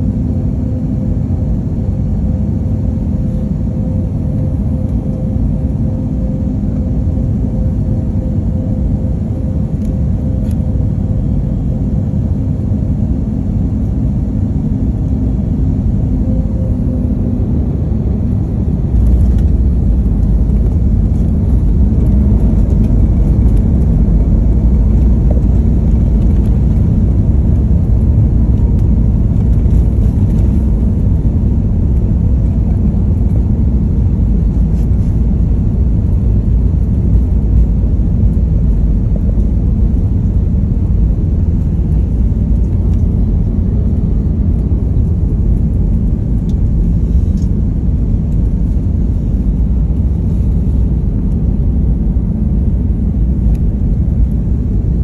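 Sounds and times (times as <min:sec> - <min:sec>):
airliner engine noise: 0:00.0 - 0:55.0
wheels rumbling on ground: 0:18.0 - 0:51.4.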